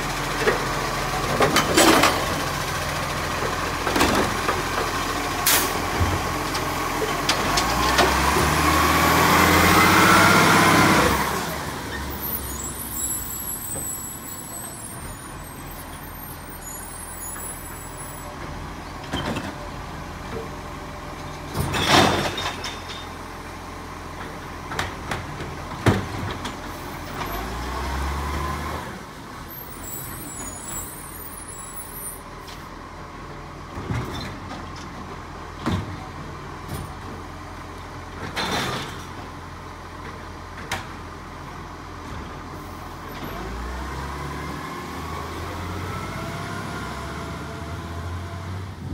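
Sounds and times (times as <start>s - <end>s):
garbage truck engine revving: 5.5s - 13.7s.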